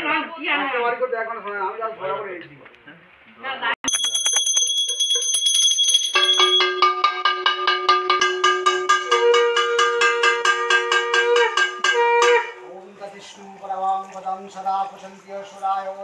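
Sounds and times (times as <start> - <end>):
hand bell ringing rapidly: 3.9 - 7.1
conch shell blown: 7.7 - 12.6.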